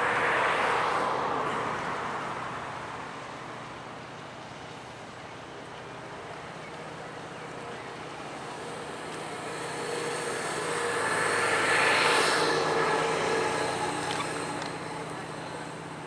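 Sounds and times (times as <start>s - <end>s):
vehicle passing by: 6.8s - 16.0s.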